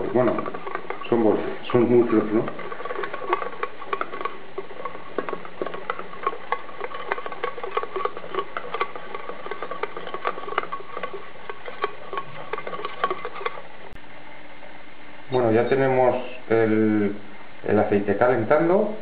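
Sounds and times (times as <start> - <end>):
whisk clicking in a metal bowl: 0.0 - 14.0.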